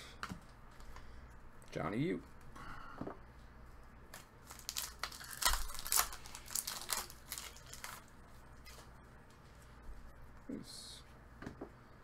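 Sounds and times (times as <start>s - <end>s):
foil wrapper crackling: 4.1s - 8.8s.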